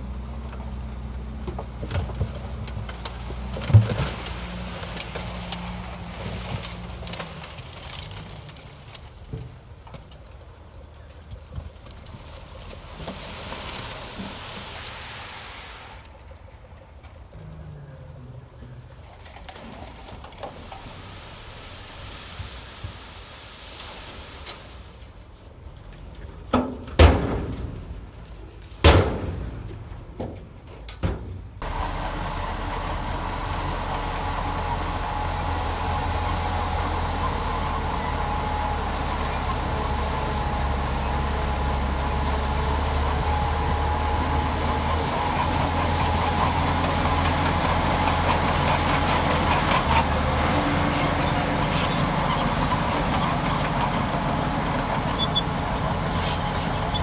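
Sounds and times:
heavy diesel engine running: 31.6s - 57.0s.

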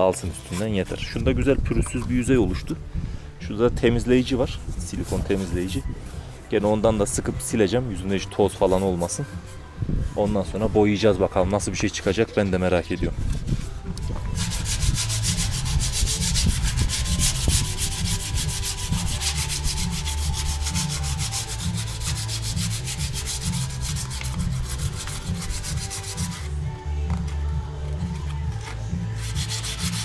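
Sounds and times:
rubbing strokes on plastic: 4.6s - 5.9s, 13.3s - 26.6s, 28.6s - 30.0s.

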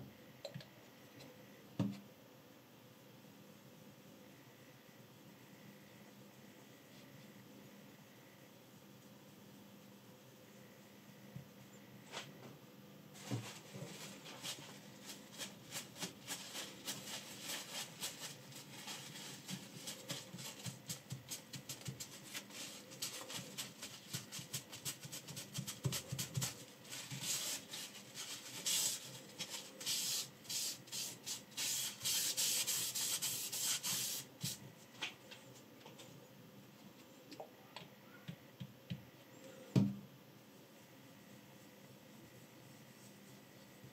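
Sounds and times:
rustling and rubbing: 13.1s - 36.1s
paper towel rubbing on stone: 13.2s - 34.6s.

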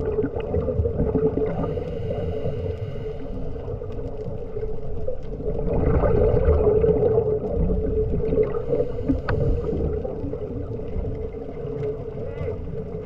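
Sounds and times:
underwater hum: 0.0s - 13.0s
faint clicks: 1.1s - 5.6s, 7.4s - 13.0s.

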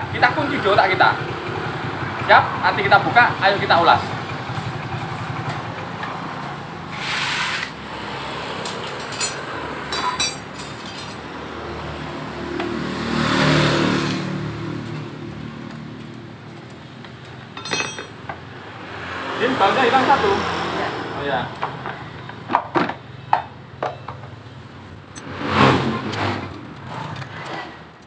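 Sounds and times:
hand tools clinking: 8.7s - 11.2s, 17.2s - 18.4s.

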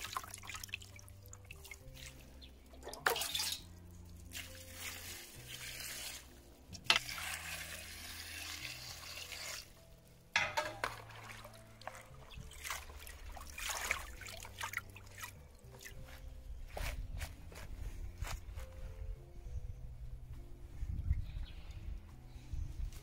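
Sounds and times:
water pouring into plastic basin: 0.0s - 2.2s, 2.8s - 3.6s, 4.3s - 6.3s, 7.0s - 9.7s, 10.8s - 15.9s
hands splashing leaves in water: 0.0s - 6.3s, 10.7s - 16.2s.

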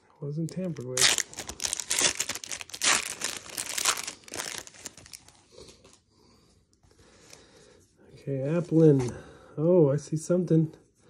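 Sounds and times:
foil wrapper crinkling and tearing: 0.5s - 6.0s.

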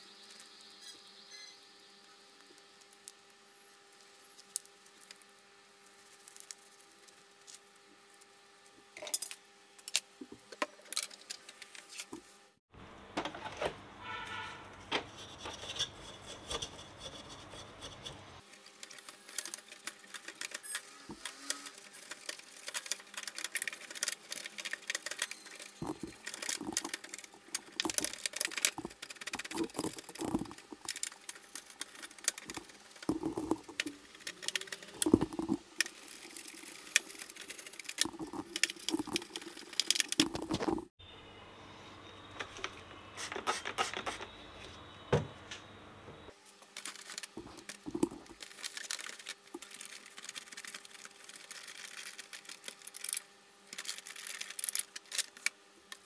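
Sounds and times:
small brush scrubbing plastic: 15.1s - 40.9s, 46.8s - 55.5s.

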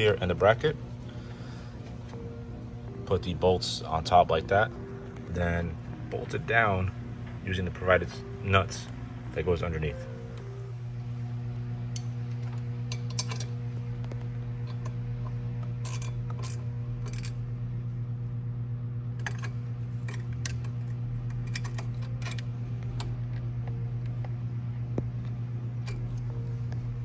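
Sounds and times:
low hum: 0.0s - 27.0s
metal nuts and bolts clinking: 12.9s - 13.5s, 19.2s - 22.5s.

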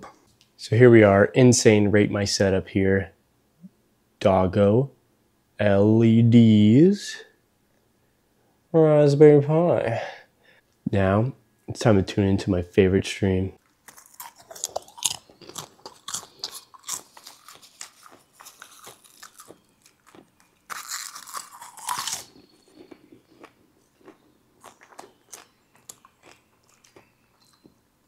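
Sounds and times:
person crunching popcorn: 13.6s - 27.6s.

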